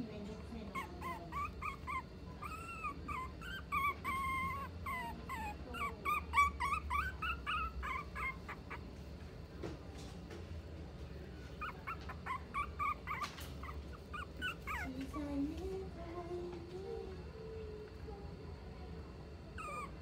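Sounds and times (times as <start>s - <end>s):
puppy whimpering: 0.5s - 8.9s, 11.4s - 15.8s, 19.5s - 20.0s.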